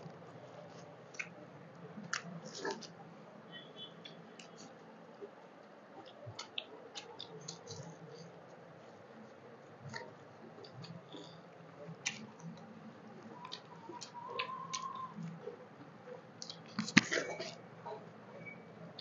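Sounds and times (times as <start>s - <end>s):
chewing smacks: 0.7s - 1.4s.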